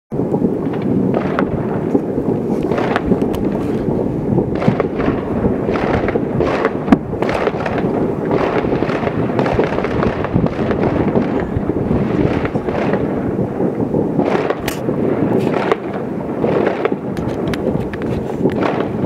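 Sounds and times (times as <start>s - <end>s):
fireworks and firecrackers bangs: 0.1s - 19.0s
sharp loud bang: 14.2s - 15.9s.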